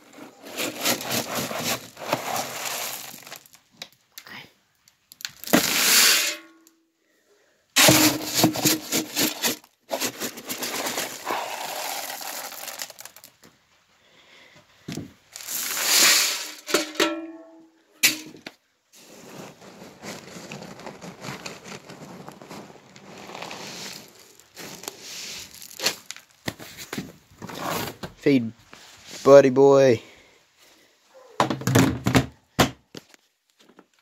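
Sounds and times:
dry kibble pouring into bucket: 0.1s - 3.6s, 5.4s - 6.3s, 7.8s - 13.5s, 15.3s - 16.8s, 19.0s - 26.3s.

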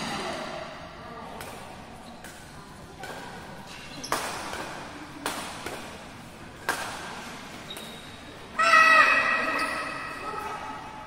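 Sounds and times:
rackets smacking shuttlecock: 1.3s - 8.2s.

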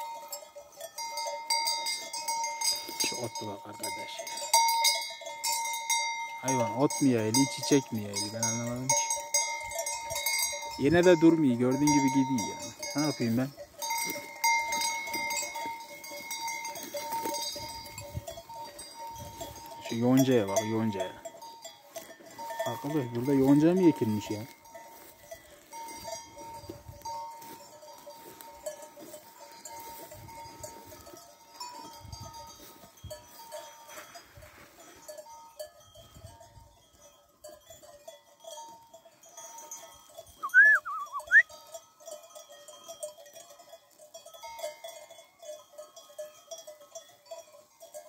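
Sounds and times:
sheep bells clinking: 0.0s - 48.0s
short gliding call: 40.4s - 41.4s.

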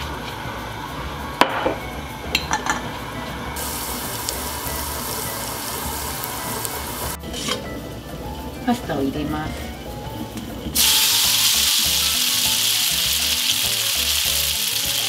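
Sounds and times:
garlic sizzling in oil: 3.6s - 7.2s, 10.8s - 15.0s.

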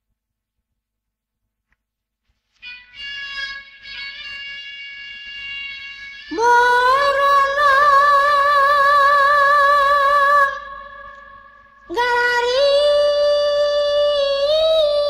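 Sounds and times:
woman singing held notes with vibrato: 6.3s - 15.0s.

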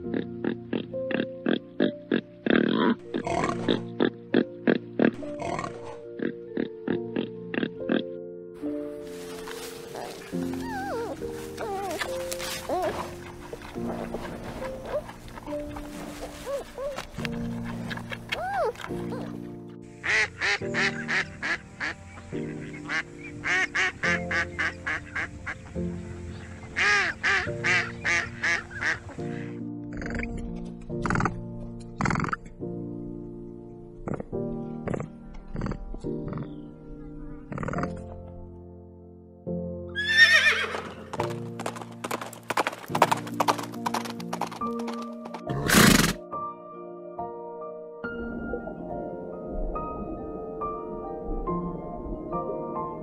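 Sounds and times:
background music with held chords: 0.0s - 53.0s
hooves clopping: 9.0s - 19.4s, 40.3s - 46.2s
horse snorting: 9.9s - 19.4s, 32.0s - 32.5s, 34.1s - 36.6s, 37.5s - 38.1s, 45.5s - 46.2s
duck quacking: 20.0s - 22.0s
horse whinnying: 40.0s - 41.2s, 45.5s - 46.2s.

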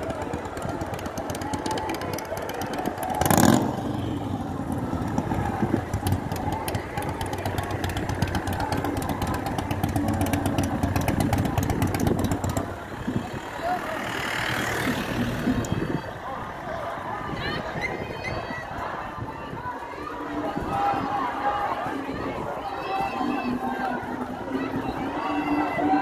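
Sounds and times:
motorcycle engines idling: 0.0s - 17.3s.

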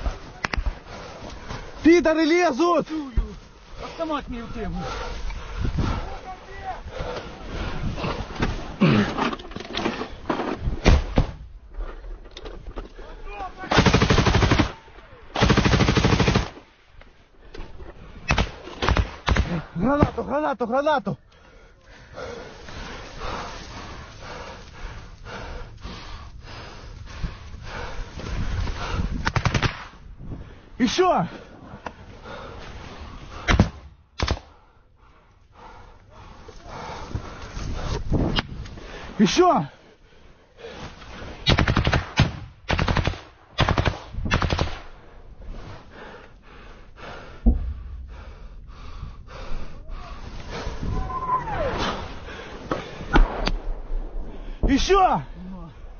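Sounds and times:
heavy fast breathing: 3.6s - 9.3s, 21.2s - 29.3s, 30.0s - 41.5s, 44.9s - 51.0s, 51.8s - 53.2s
burst of gunfire: 13.7s - 16.6s, 41.5s - 44.9s.

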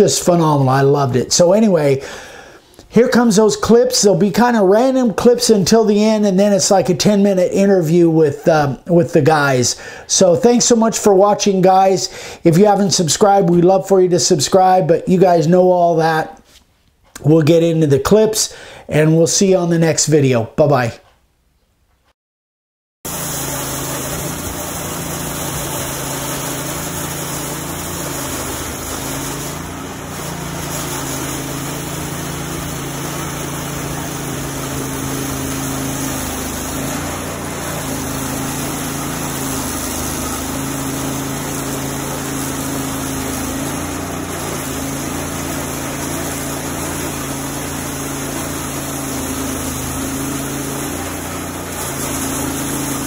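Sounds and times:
band sawmill cutting log: 23.1s - 53.0s.

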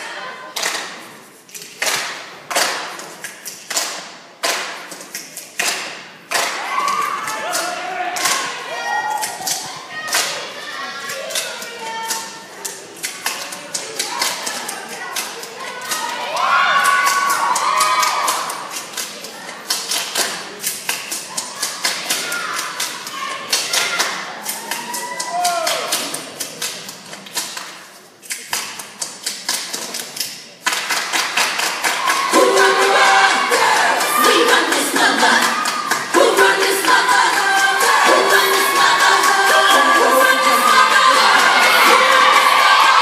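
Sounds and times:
stomps and claps echoing: 0.0s - 43.0s
audience shouts: 6.5s - 10.8s, 15.7s - 18.7s, 23.2s - 26.0s, 31.8s - 34.6s, 39.6s - 43.0s
dancers stomping and clapping: 30.6s - 43.0s.

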